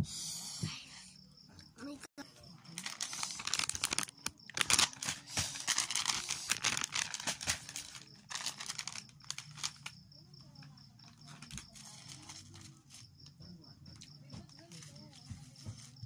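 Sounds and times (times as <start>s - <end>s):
plastic bag crinkling: 2.5s - 10.0s, 11.0s - 13.0s.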